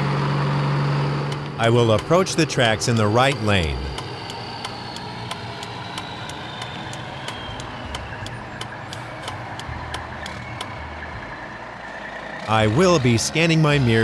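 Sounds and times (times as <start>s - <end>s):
truck engine and road noise: 0.0s - 14.0s
light regular ticking: 1.3s - 11.5s.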